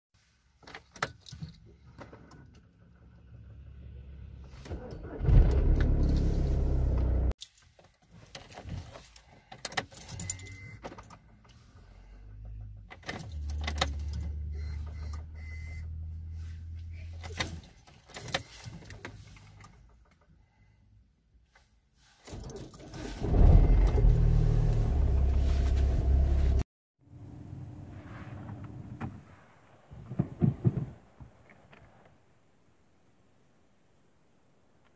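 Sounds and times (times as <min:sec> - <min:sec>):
keys jangling in ignition: 0:07.4 - 0:11.2.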